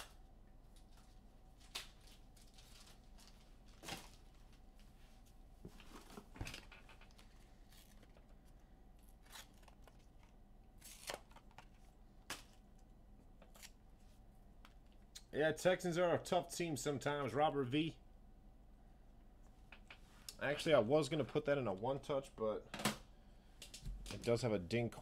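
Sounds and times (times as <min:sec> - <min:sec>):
cards and packaging handled: 0:00.0 - 0:04.6, 0:05.9 - 0:12.6.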